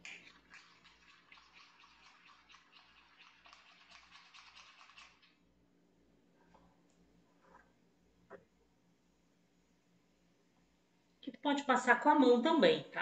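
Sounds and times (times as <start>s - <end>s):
spoon stirring in glass bowl: 0.1s - 5.4s.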